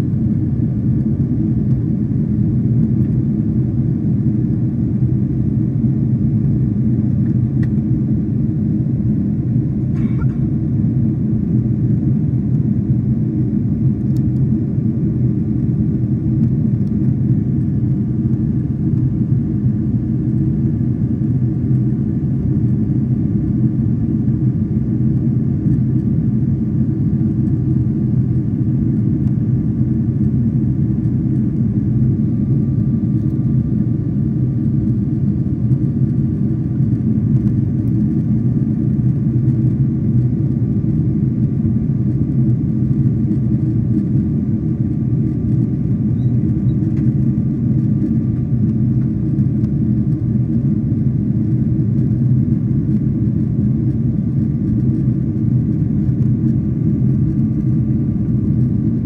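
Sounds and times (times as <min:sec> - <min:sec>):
airflow over fuselage: 0:00.0 - 0:59.0
faint steady whine: 0:00.0 - 0:59.0
jet engines rumbling: 0:00.0 - 0:59.0.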